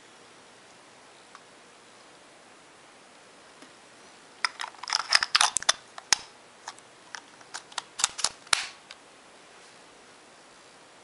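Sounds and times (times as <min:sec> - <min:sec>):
plastic camera door clicks: 0:07.5 - 0:08.7.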